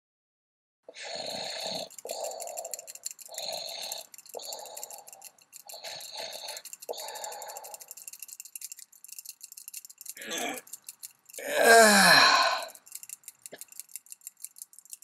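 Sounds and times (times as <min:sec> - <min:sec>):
cartoon cat snoring: 0:00.9 - 0:07.9, 0:11.4 - 0:12.8
fast light ticking: 0:01.2 - 0:15.0.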